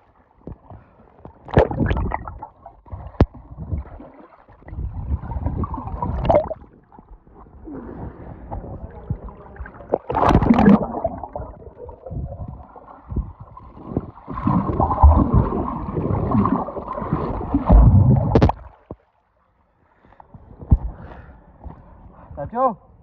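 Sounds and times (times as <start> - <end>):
underwater gurgling and bubbling: 1.4 - 18.7
water splash: 1.5 - 4.8, 5.4 - 6.7, 9.6 - 12.0, 14.2 - 18.9.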